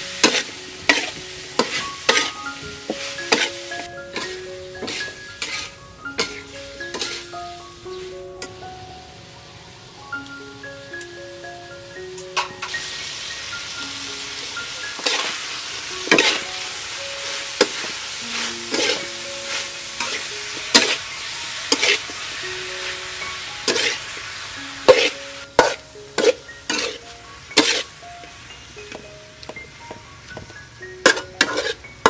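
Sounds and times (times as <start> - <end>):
vegetables sizzling in a wok: 0.0 - 32.0
metal spatula scraping a wok: 0.2 - 7.3, 14.9 - 15.4, 16.0 - 16.5, 17.5 - 22.2, 23.6 - 24.1, 24.8 - 27.9, 31.0 - 31.9.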